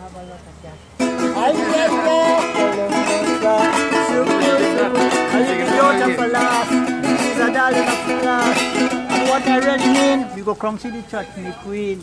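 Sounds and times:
acoustic guitar strumming: 1.0 - 12.0
person singing: 1.1 - 10.4.

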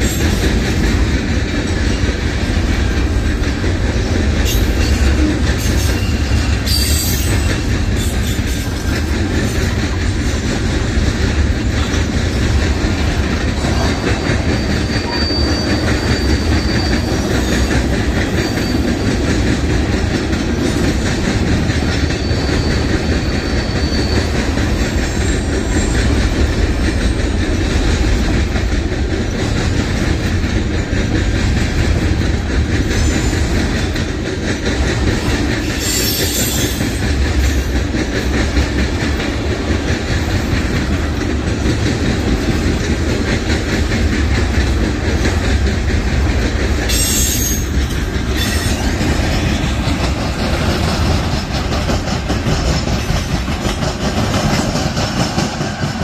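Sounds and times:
train wheels rumbling on rails: 0.0 - 56.0
thin wheel squeal: 14.5 - 17.6, 22.2 - 24.4.

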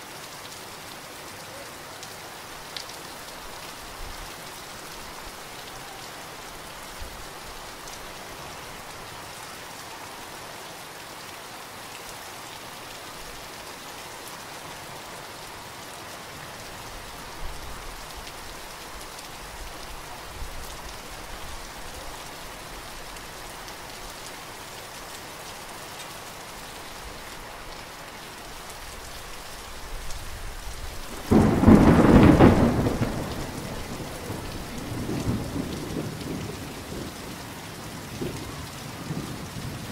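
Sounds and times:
heavy rain splashing into puddles: 0.0 - 39.9
thunder clap rumbling: 31.1 - 37.1.

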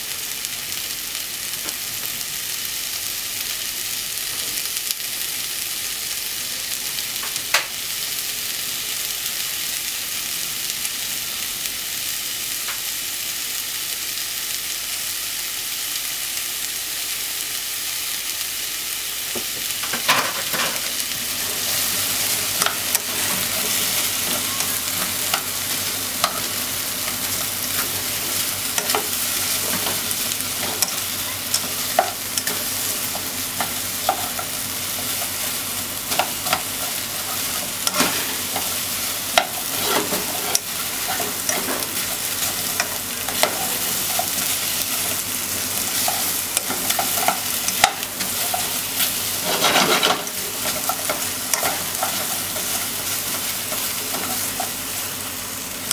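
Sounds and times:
vegetables sizzling in a pot: 0.0 - 55.9
spatula scraping a pot: 49.4 - 50.9.

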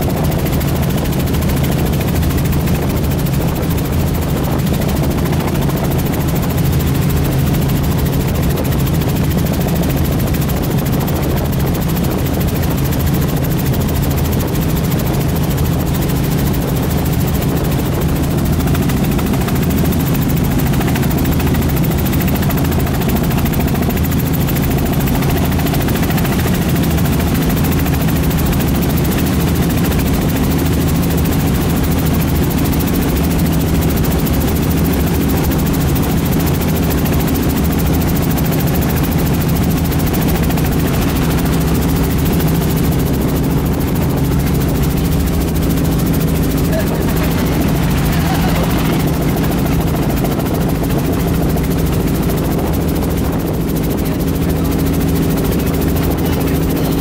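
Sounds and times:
helicopter engine and rotors droning: 0.0 - 57.0.

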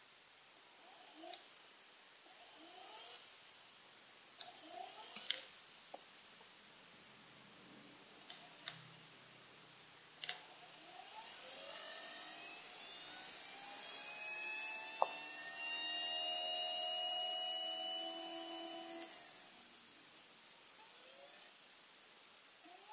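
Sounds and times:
blender motor whining: 4.5 - 5.6, 10.7 - 21.8
sharp clicks: 10.2 - 10.4.

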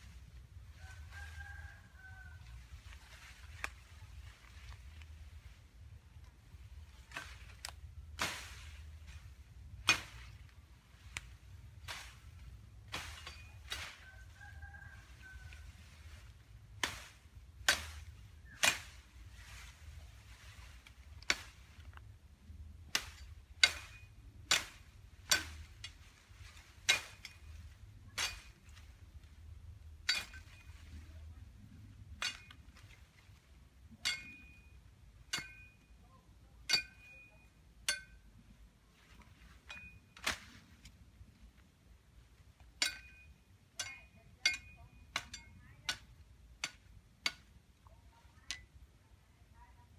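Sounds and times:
machete chopping bamboo: 9.7 - 10.4, 16.8 - 19.0, 21.2 - 21.7, 22.9 - 26.0, 26.8 - 27.4
metallic blade ring: 34.0 - 36.0, 36.7 - 38.3, 42.8 - 45.6.

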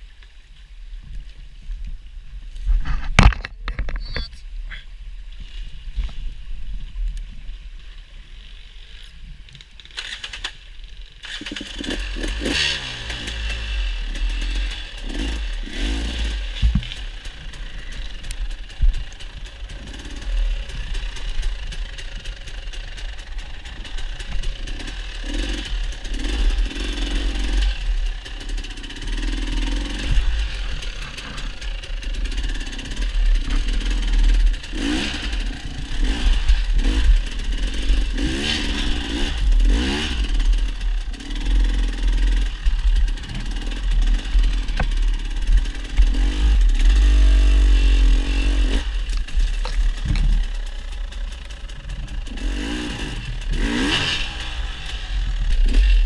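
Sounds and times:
clatter from bike: 8.9 - 15.2, 49.0 - 56.0
dirt bike engine revving: 9.9 - 56.0.

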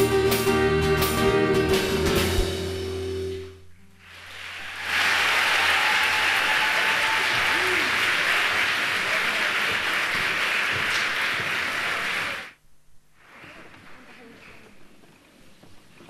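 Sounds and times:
audience applauding: 4.0 - 12.6.

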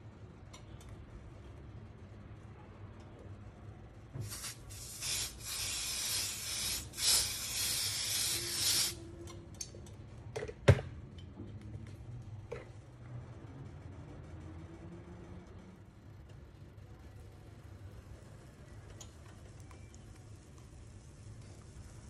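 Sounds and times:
cooking spray hissing: 4.2 - 9.0.

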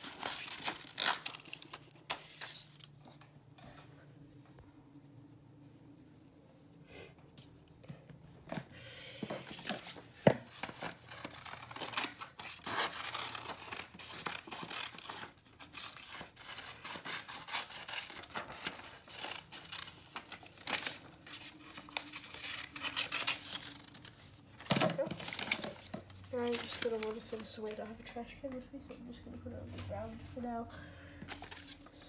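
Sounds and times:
paper rustling and crinkling: 0.0 - 3.8, 8.3 - 28.1, 31.2 - 32.0
scissors cutting paper: 10.6 - 24.2.

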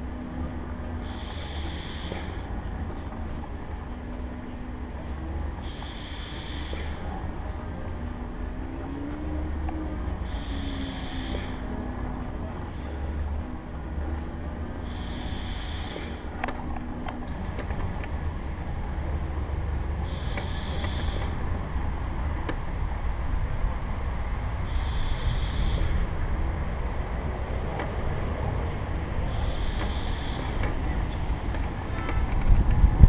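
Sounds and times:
rumble of wheels on tarmac: 0.0 - 33.0
high buzzing chirp: 1.0 - 2.5, 5.6 - 7.0, 10.2 - 11.7, 14.8 - 16.3, 19.7 - 21.4, 24.6 - 26.2, 29.2 - 30.7.

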